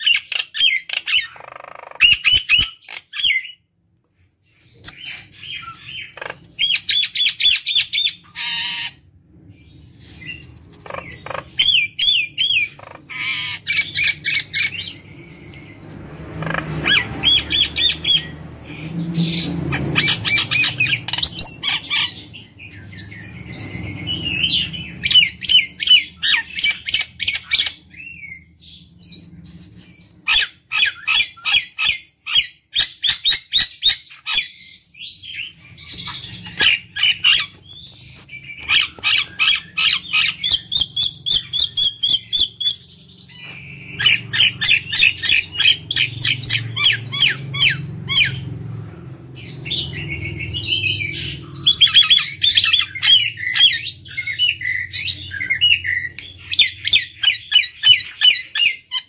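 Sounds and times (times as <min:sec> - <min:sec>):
bird squawking and chattering: 0:00.0 - 0:03.6, 0:04.6 - 0:09.1, 0:09.8 - 0:48.8, 0:49.4 - 0:59.0.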